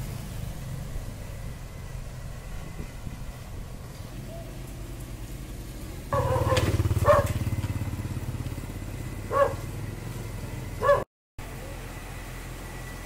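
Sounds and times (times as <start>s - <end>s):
diesel engine chugging: 0.0s - 13.0s
dog barking: 6.1s - 7.4s, 9.3s - 9.7s, 10.8s - 11.1s.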